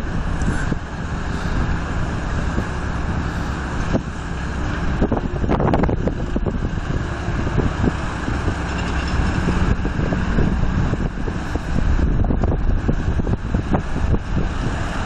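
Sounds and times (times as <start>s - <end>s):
low steady rumble: 0.0s - 15.0s
wind buffeting microphone: 0.0s - 15.0s.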